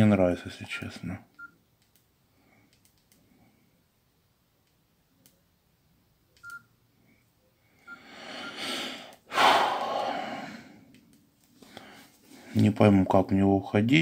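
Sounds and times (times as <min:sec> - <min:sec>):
phone key beeps and clicks: 0:06.4 - 0:06.7
breath and long sigh: 0:08.0 - 0:10.8.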